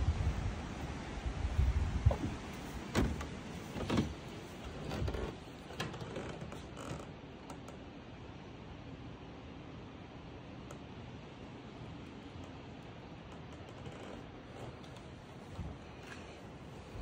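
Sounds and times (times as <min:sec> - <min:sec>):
footsteps on creaking wooden floor: 0:01.6 - 0:07.1, 0:13.5 - 0:16.3.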